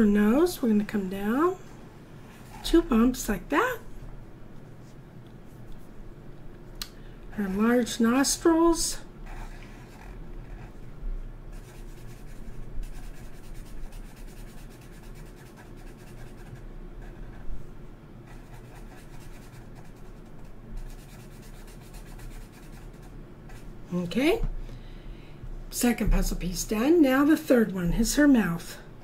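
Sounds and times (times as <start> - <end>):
marker scratching on paper: 9.2 - 10.8, 11.5 - 17.4, 18.2 - 23.7.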